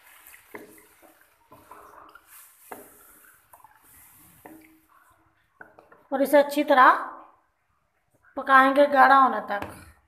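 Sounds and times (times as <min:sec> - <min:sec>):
wooden spoon knocking a pan: 0:00.5 - 0:01.9, 0:02.7 - 0:03.1.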